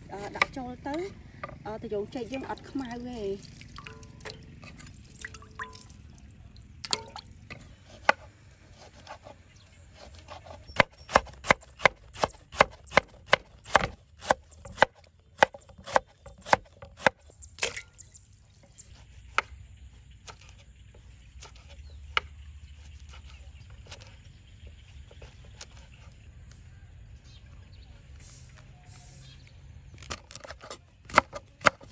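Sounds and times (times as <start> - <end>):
knife chopping on wooden board: 10.0 - 17.2, 30.1 - 31.9.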